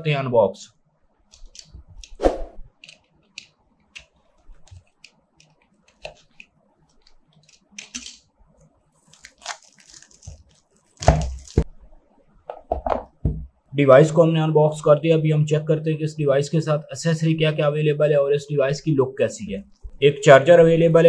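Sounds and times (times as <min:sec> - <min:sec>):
knife scratching shrink-wrap: 0:09.0 - 0:11.6
plastic wrapping crinkling: 0:09.0 - 0:11.7.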